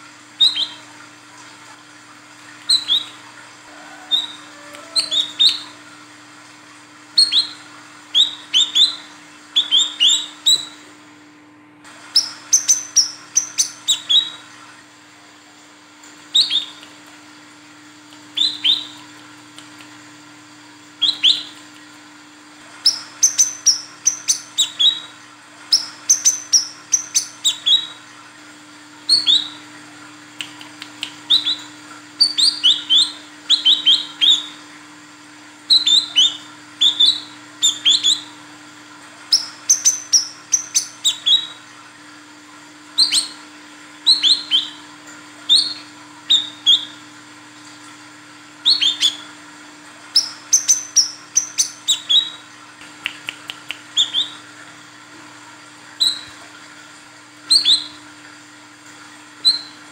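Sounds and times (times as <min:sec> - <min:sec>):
sunbird chirping: 0:00.4 - 0:00.9, 0:02.6 - 0:05.8, 0:07.2 - 0:10.8, 0:12.1 - 0:14.4, 0:16.3 - 0:17.0, 0:18.3 - 0:19.0, 0:21.0 - 0:21.7, 0:22.7 - 0:28.0, 0:29.1 - 0:29.6, 0:31.0 - 0:34.6, 0:35.7 - 0:38.3, 0:39.3 - 0:41.6, 0:43.0 - 0:43.4, 0:44.0 - 0:44.8, 0:45.5 - 0:47.0, 0:48.6 - 0:49.3, 0:50.1 - 0:52.4, 0:53.2 - 0:54.5, 0:57.5 - 0:58.0, 0:59.4 - 0:59.8.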